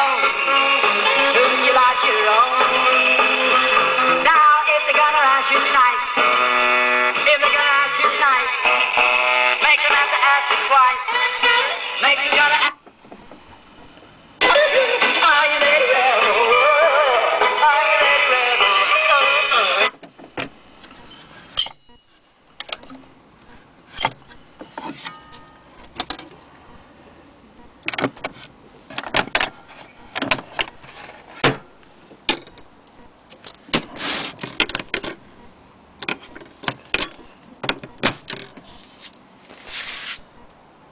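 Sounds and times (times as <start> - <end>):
gramophone handling clicks and knocks: 33.3 - 35.2, 36.0 - 38.7.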